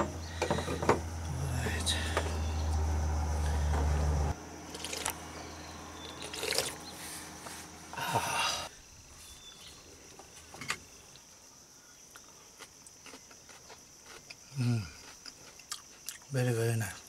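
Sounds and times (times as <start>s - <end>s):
sipping noises: 6.1s - 6.8s.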